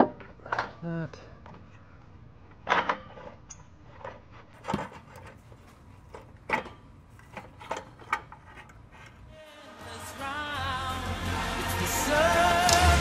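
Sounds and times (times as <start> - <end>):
metallic clunks and knocks: 6.1 - 9.1.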